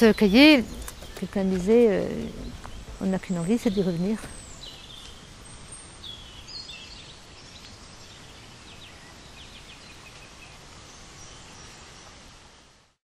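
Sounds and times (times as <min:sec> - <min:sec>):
faint bird chirps: 0:00.0 - 0:12.2
steady background hiss: 0:00.0 - 0:13.0.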